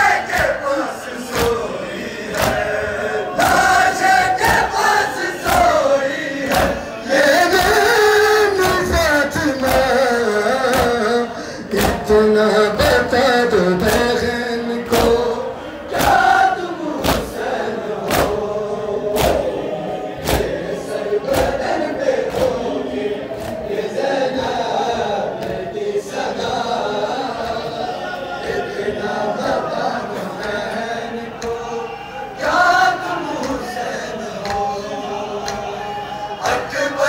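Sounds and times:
men chanting a lament: 0.0s - 37.0s
chest beating slaps: 17.0s - 17.3s, 18.1s - 18.4s.

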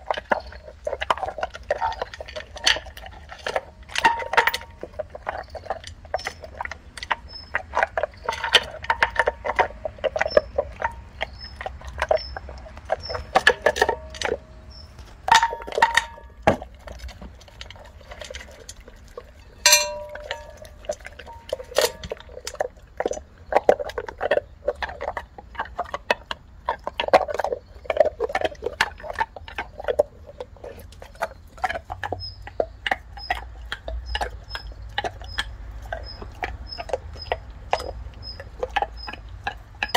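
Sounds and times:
kibble clinking on metal bowl: 0.0s - 25.2s
dog crunching kibble: 0.0s - 39.9s
dog gnawing on bone: 0.0s - 39.9s
metal bowl ringing: 15.3s - 16.4s, 19.6s - 22.2s.

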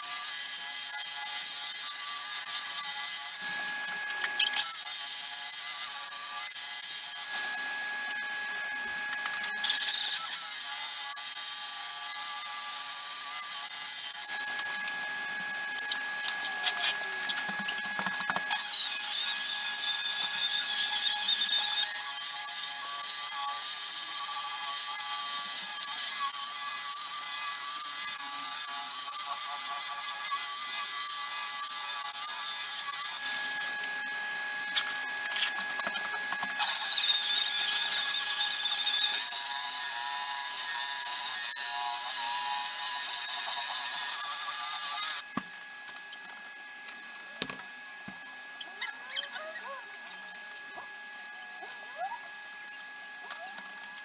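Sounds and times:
electric car polisher whining: 2.2s - 22.6s.

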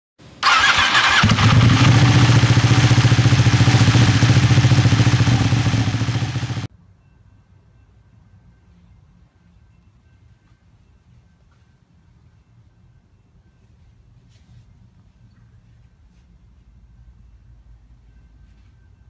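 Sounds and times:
motorcycle engine starting and idling: 0.4s - 6.7s.

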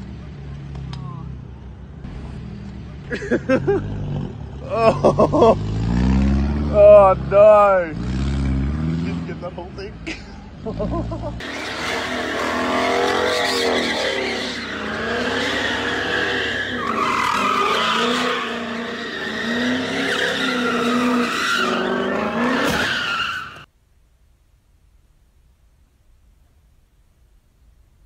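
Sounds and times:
car engine revving: 1.9s - 9.8s, 10.5s - 23.7s
tyres squealing: 11.4s - 23.7s.

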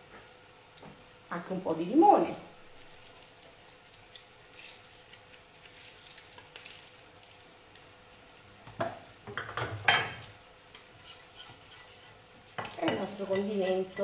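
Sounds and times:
faint steady hiss: 0.0s - 14.0s
utensils scraping and clinking dish: 9.3s - 14.0s.

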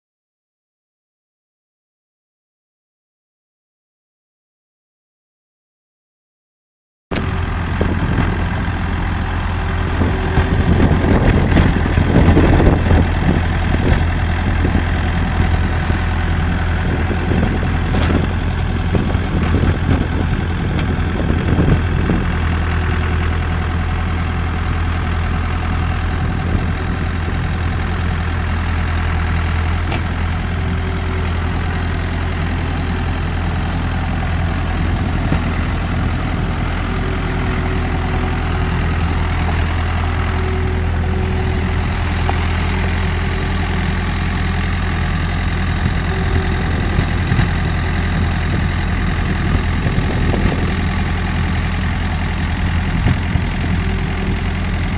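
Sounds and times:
diesel engine running: 7.1s - 54.9s.

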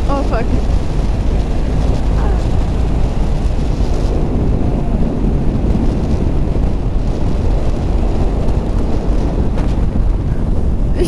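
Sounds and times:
motorcycle engine running: 0.0s - 11.0s
wind buffeting microphone: 0.0s - 11.0s.

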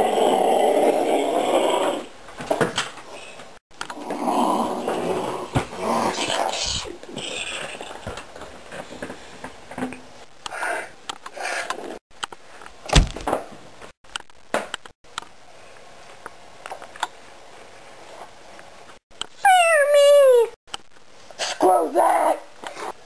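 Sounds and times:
sharp thump: 12.9s - 13.4s.

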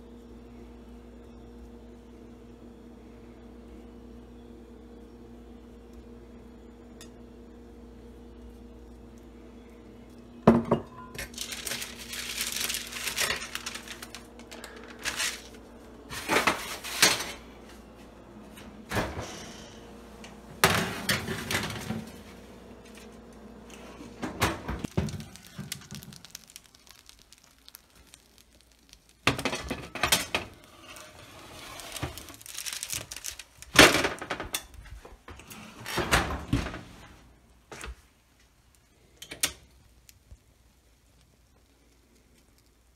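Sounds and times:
oven being handled: 10.6s - 17.8s, 29.3s - 38.0s.

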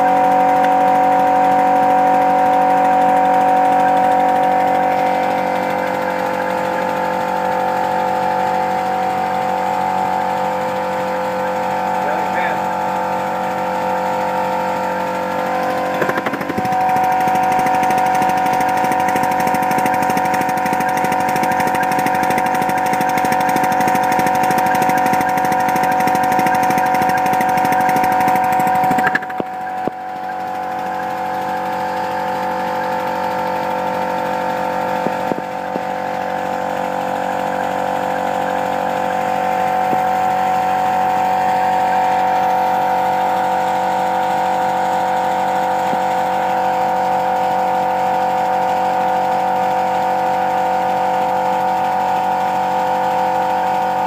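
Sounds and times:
steady whine: 0.0s - 44.7s
air exhaust beats: 0.1s - 30.7s.

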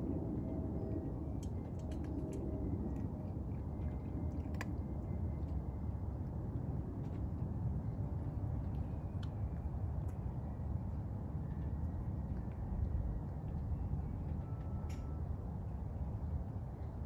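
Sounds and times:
steady low rumble: 0.0s - 17.0s
cat eating from metal bowl: 3.8s - 4.9s.

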